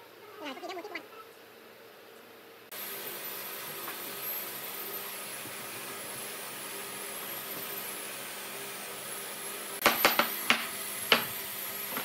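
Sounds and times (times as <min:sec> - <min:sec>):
workshop background hiss: 0:02.6 - 0:12.0.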